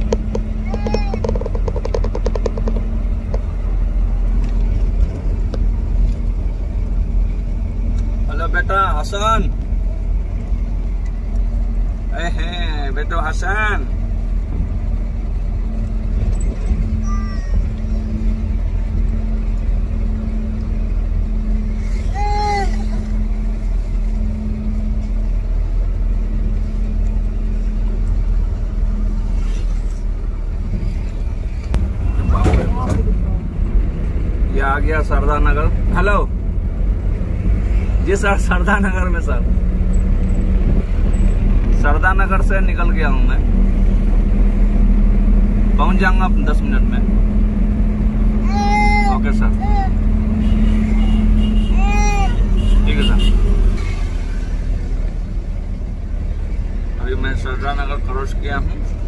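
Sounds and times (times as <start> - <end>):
car engine rumble: 0.0 - 59.0.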